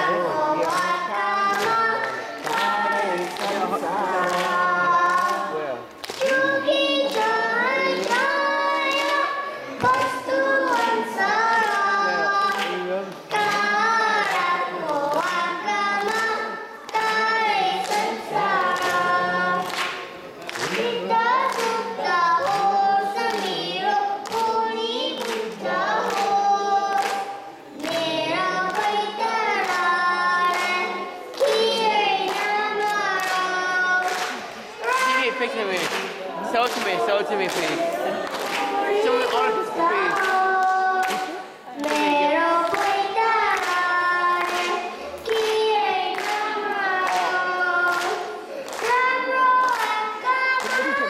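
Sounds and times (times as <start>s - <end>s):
girl singing into a microphone: 0.0s - 36.8s, 37.7s - 51.0s.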